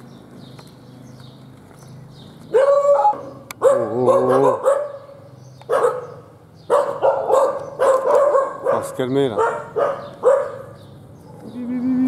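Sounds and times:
dog barking: 2.5 - 10.8.

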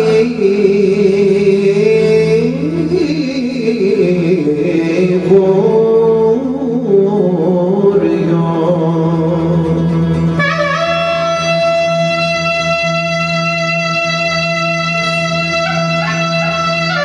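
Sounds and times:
lute: 0.0 - 17.0
qanun: 0.0 - 17.0
steady low drone note: 8.9 - 17.0
clarinet melody: 10.1 - 17.0.

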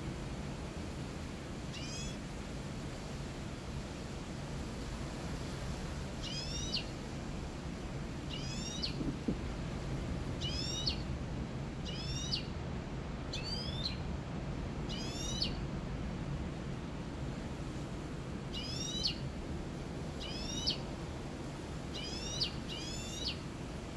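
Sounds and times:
bird singing whistled notes: 13.3 - 14.0, 14.9 - 15.6.

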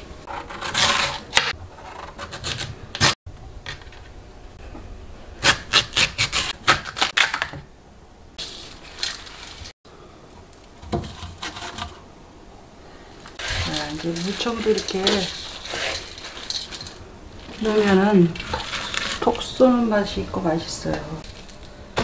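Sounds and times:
handling vegetable pieces: 13.2 - 19.7.

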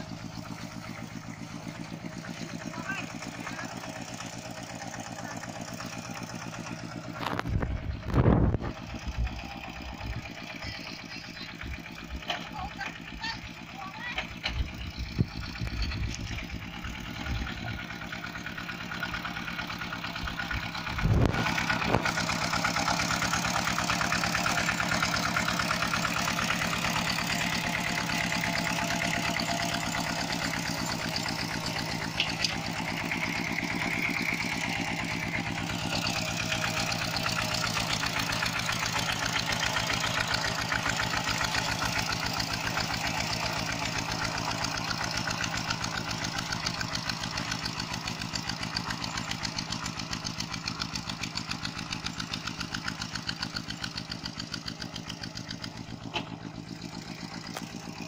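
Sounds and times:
diesel engine chugging: 0.0 - 58.0.

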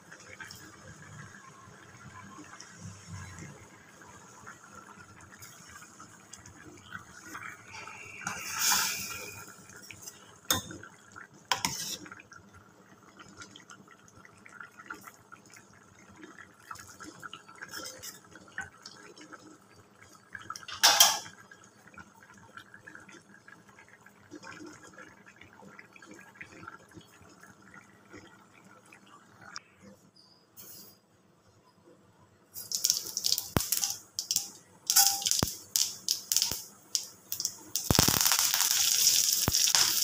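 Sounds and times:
spoon scraping metal pan: 7.8 - 9.4, 11.5 - 12.0
curry bubbling and spattering: 32.6 - 40.0.

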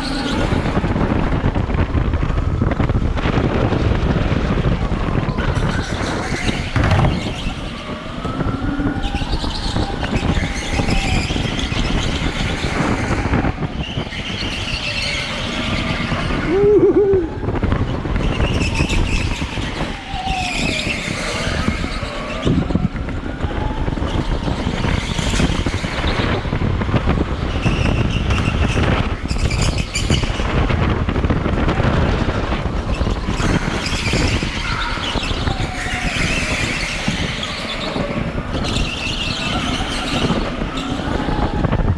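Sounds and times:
wheels rumbling on concrete: 0.0 - 41.9.

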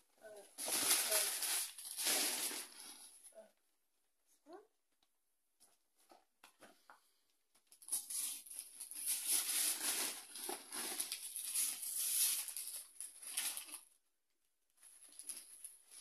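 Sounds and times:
wrapping paper tearing and crinkling: 0.3 - 3.0, 7.8 - 13.8.

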